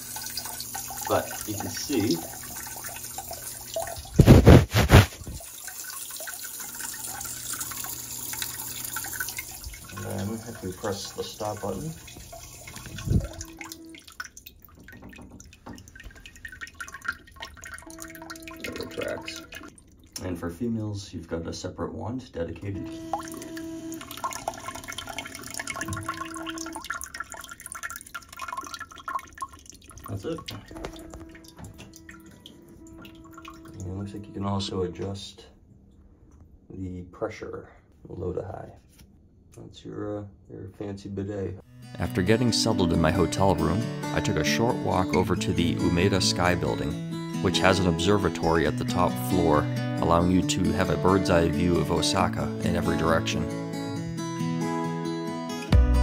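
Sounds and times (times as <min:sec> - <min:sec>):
water spraying into toilet bowl: 0:00.0 - 0:20.2, 0:22.9 - 0:33.8.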